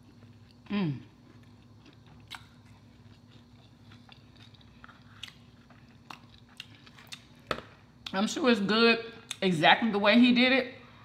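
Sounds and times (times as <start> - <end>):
person chewing: 0.0 - 8.1
person humming mmm: 0.7 - 1.2.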